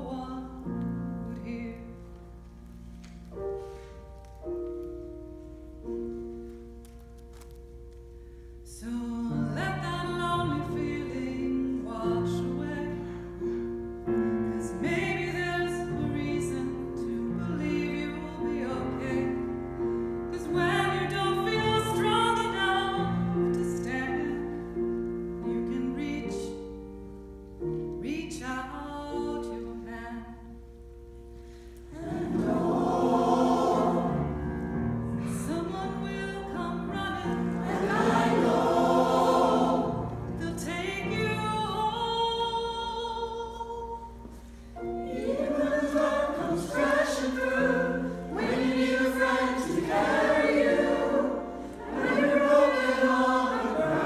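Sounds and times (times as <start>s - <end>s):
choir holding long notes: 31.9s - 35.2s, 36.8s - 40.6s, 44.8s - 54.0s.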